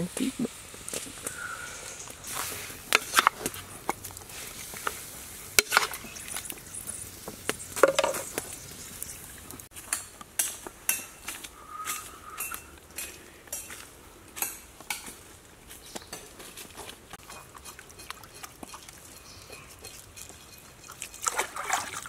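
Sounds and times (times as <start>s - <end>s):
hot wok sizzling: 0.0s - 11.2s
metal knocking against pan: 7.8s - 8.3s.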